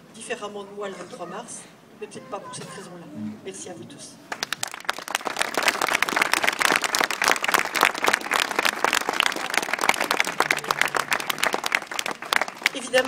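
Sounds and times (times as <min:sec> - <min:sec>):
crowd applauding: 0:04.3 - 0:13.0.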